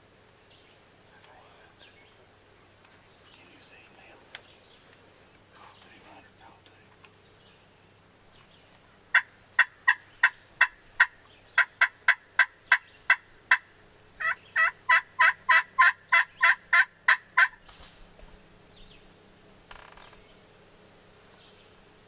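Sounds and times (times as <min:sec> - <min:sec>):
turkey yelps: 0:14.2 - 0:17.6.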